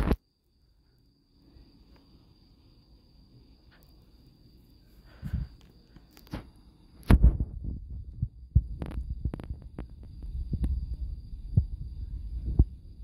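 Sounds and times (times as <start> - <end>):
uneven low rumble: 7.1 - 13.0.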